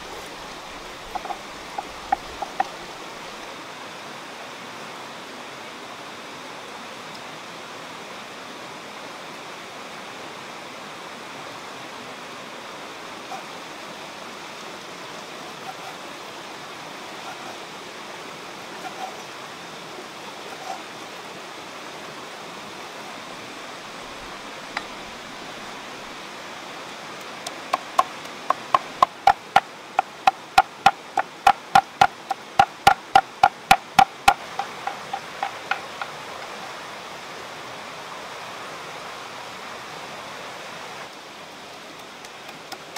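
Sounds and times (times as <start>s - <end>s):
stream rushing: 0.0s - 42.9s
cleaver chopping on wooden block: 27.7s - 36.1s.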